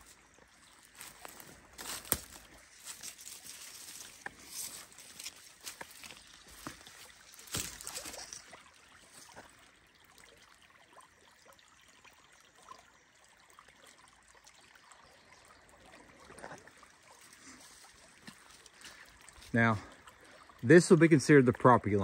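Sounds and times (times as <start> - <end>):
creek trickling faintly: 0.0 - 22.0
sharp crackles and knocks: 1.0 - 8.4.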